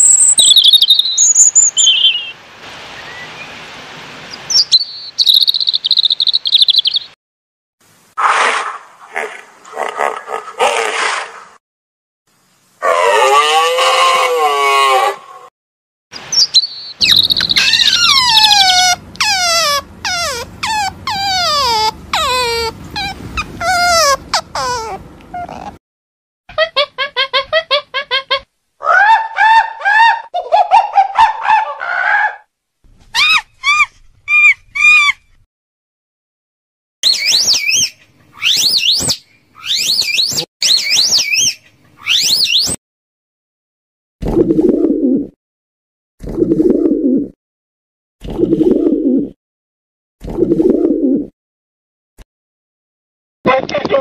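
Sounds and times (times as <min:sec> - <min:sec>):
pitched animal call: 0:12.8 - 0:15.5, 0:17.0 - 0:25.8
animal warbling whistles: 0:16.4 - 0:25.0, 0:37.0 - 0:42.8
otters squealing: 0:17.0 - 0:25.8.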